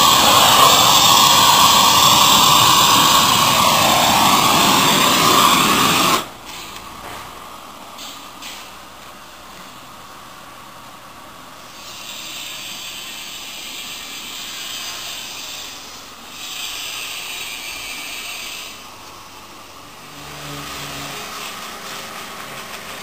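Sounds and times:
gas torch hissing: 0:00.0 - 0:06.9, 0:11.6 - 0:18.9.

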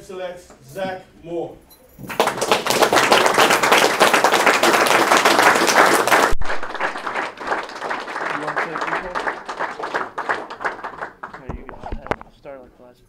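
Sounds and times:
audience clapping: 0:02.0 - 0:11.8.

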